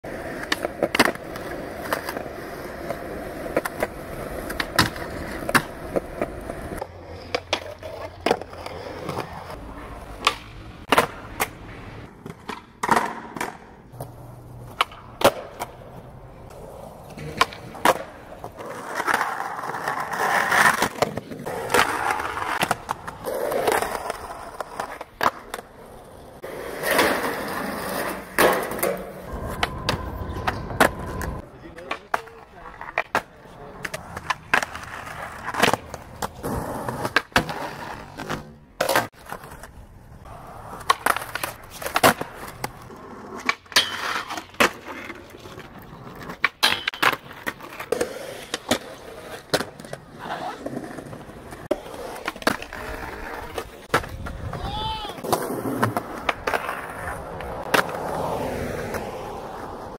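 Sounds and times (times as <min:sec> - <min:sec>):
skateboard wheels rolling on concrete: 0:00.0 - 0:59.9
skateboard landing clack: 0:03.5 - 0:09.3, 0:10.2 - 0:14.1, 0:14.7 - 0:15.8, 0:26.8 - 0:39.7, 0:40.8 - 0:42.8, 0:46.2 - 0:50.0.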